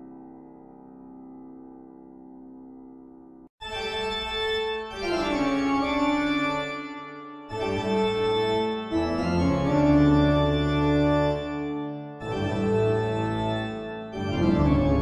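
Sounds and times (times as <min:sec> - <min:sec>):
sustained organ chords: 0:04.5 - 0:15.0.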